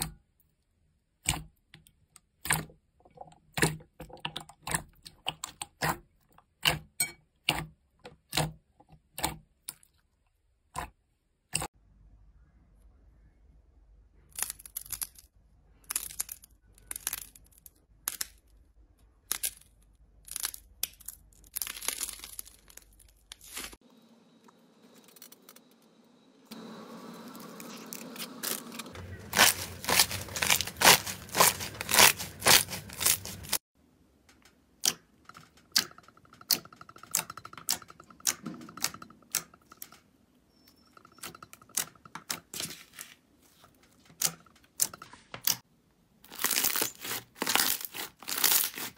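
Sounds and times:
slime squeezed by hand crackling: 27.7s - 33.6s.

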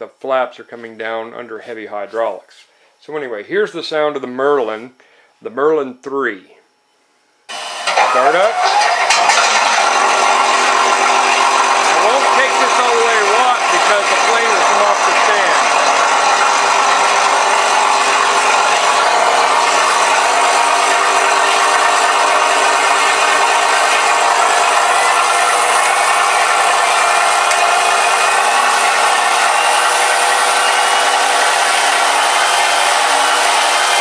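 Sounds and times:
synthetic engine noise from speakers: 7.5s - 34.0s.

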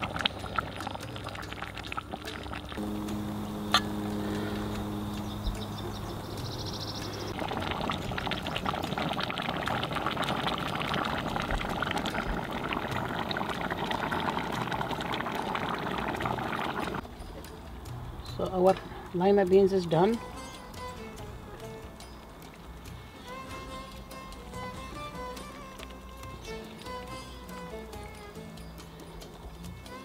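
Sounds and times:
stew bubbling crackle: 0.0s - 17.1s, 25.6s - 27.6s
low hum: 2.8s - 9.4s.

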